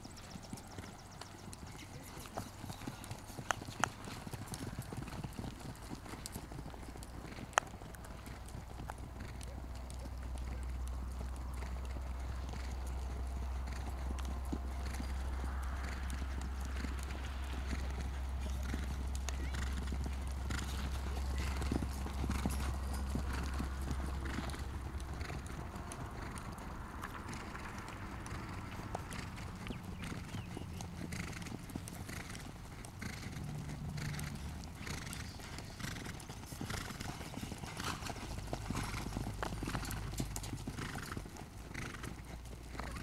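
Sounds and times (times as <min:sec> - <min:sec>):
horse hoofbeats on grass: 0:00.0 - 0:43.0.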